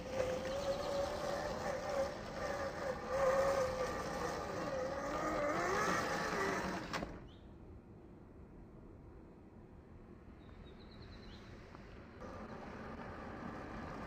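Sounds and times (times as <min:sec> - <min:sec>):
electric motor whining: 0:00.0 - 0:07.2, 0:12.2 - 0:14.0.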